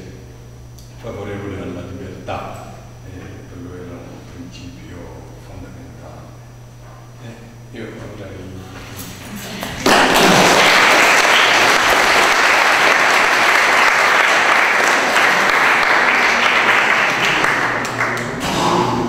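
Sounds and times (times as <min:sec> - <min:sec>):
audience applauding: 0:09.6 - 0:18.4.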